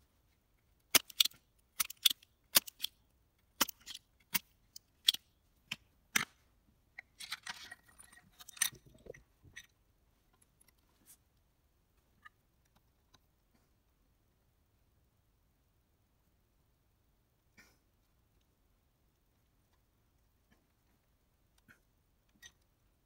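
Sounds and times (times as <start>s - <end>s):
tools rustling and clattering: 7.0s - 9.7s.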